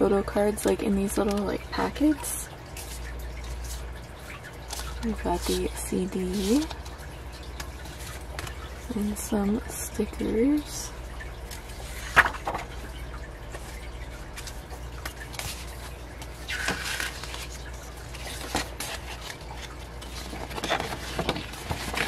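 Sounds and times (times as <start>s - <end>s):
paper rustling and tapping: 0.6s - 2.1s, 2.8s - 5.7s, 6.3s - 8.7s, 11.5s - 12.8s, 13.5s - 22.0s
book pages riffled: 14.4s - 22.0s.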